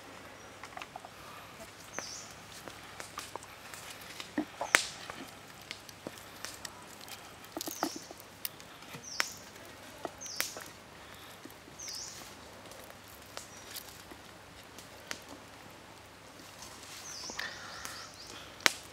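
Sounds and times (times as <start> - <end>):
bird chirping: 0.2 - 2.5, 7.6 - 12.3, 16.9 - 18.5.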